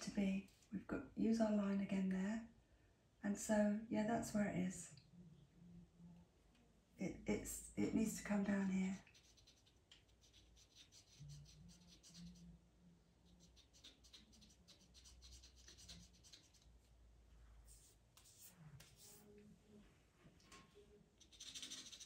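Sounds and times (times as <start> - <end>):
faint low hum: 0.0 - 22.0
pencil scratching on paper: 9.0 - 12.5, 13.2 - 16.9, 17.7 - 19.3, 21.2 - 22.0.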